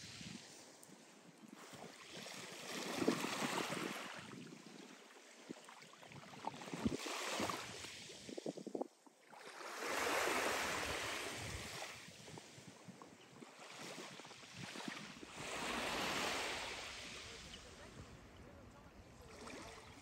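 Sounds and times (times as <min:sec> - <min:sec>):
small waves lapping on shingle: 0:00.1 - 0:08.6, 0:09.3 - 0:20.0.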